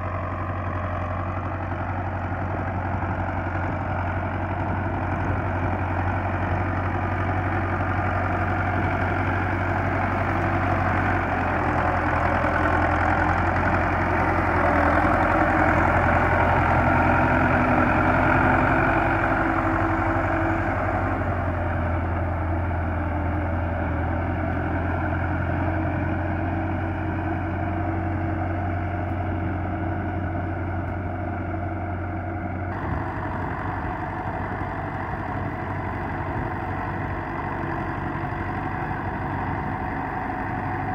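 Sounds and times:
tractor diesel engine running: 0:00.0 - 0:40.9.

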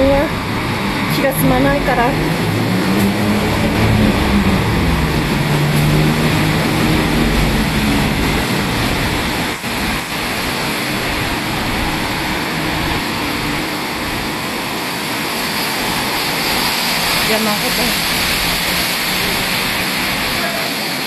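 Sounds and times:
vehicle engine hum: 0:00.0 - 0:20.8
passing vehicles hiss: 0:00.0 - 0:21.0.

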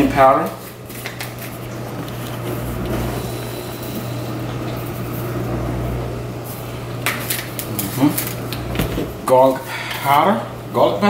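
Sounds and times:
kitchen appliance humming and whooshing: 0:00.0 - 0:11.0.

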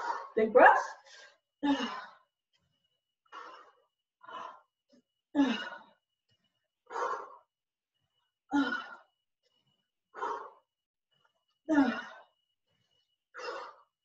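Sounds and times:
woman breathing hard: 0:01.0 - 0:02.4, 0:03.2 - 0:06.1, 0:06.8 - 0:07.6, 0:08.5 - 0:09.2, 0:10.1 - 0:10.8, 0:11.7 - 0:12.4, 0:13.3 - 0:14.0.

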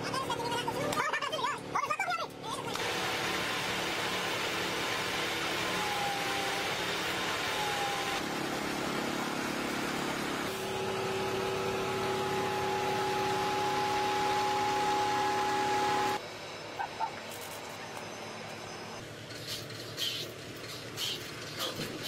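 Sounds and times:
heavy truck machinery running: 0:05.0 - 0:22.0
steady whine: 0:10.5 - 0:19.0.

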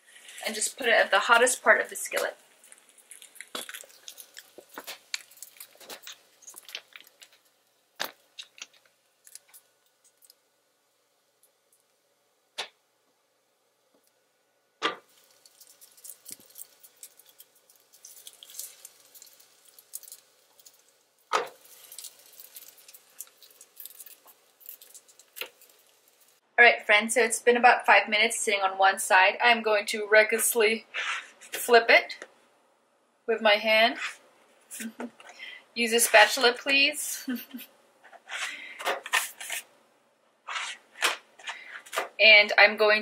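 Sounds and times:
dough crackling on griddle: 0:00.0 - 0:12.0, 0:14.8 - 0:26.4, 0:40.5 - 0:42.2
faint steady hum: 0:00.0 - 0:43.0.

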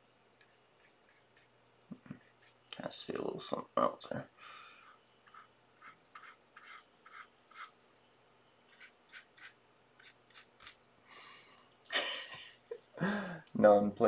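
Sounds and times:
paintbrush strokes on paper: 0:00.4 - 0:02.6, 0:04.8 - 0:07.7
short breathy laugh: 0:11.9 - 0:13.4.

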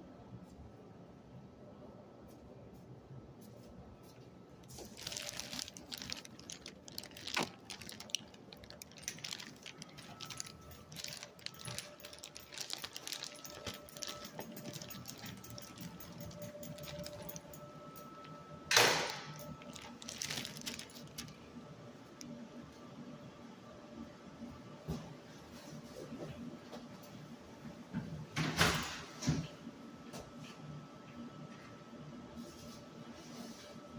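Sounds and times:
keys jangling: 0:09.0 - 0:17.7.

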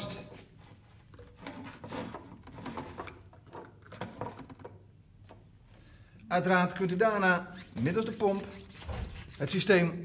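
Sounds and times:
hose and pump handling: 0:00.0 - 0:04.8, 0:06.9 - 0:09.7.

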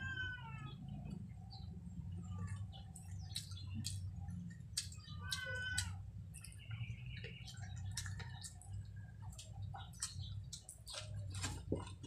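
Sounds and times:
chewing and lip smacks: 0:02.5 - 0:12.0.

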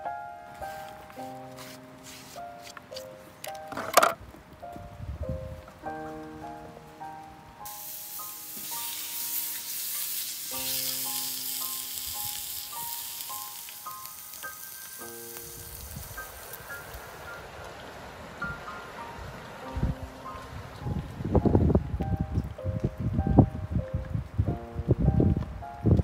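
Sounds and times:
gentle background music: 0:00.0 - 0:26.0
fat sizzling in a metal pan: 0:07.6 - 0:17.2.

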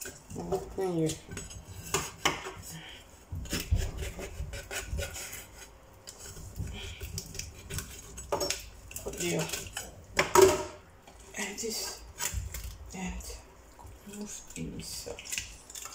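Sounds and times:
knife scraping fish fins: 0:01.1 - 0:09.9, 0:14.0 - 0:15.9.

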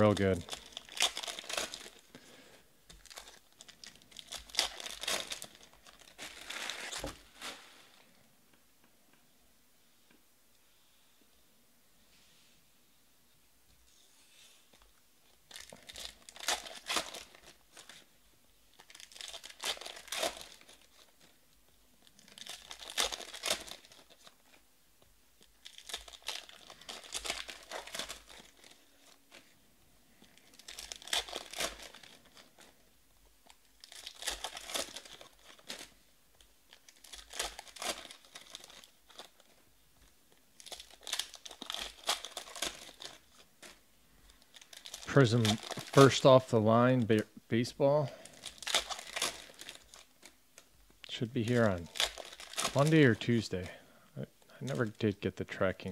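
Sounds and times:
foil wrappers tearing open: 0:00.0 - 0:02.2, 0:02.9 - 0:07.7, 0:15.5 - 0:18.0, 0:18.7 - 0:21.4, 0:22.0 - 0:24.6, 0:25.5 - 0:29.5, 0:30.4 - 0:32.8, 0:33.4 - 0:36.0, 0:36.7 - 0:39.6, 0:40.6 - 0:46.5, 0:48.2 - 0:50.4, 0:51.1 - 0:53.4.

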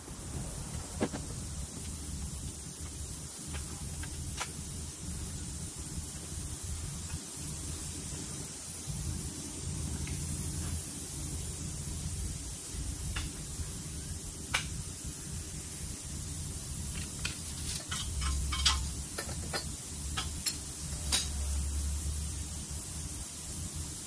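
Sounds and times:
low hum and hiss: 0:00.0 - 0:24.0
light metallic clinks: 0:16.8 - 0:21.8.

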